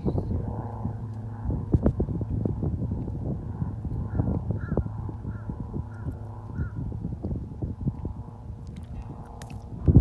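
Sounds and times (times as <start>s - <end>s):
propeller plane droning: 0.0s - 10.0s
wind buffeting microphone: 0.0s - 10.0s.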